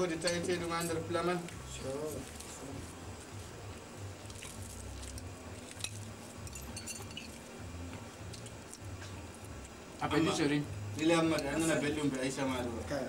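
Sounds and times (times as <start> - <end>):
cutlery clinking on plates: 0.2 - 1.1, 5.7 - 7.5.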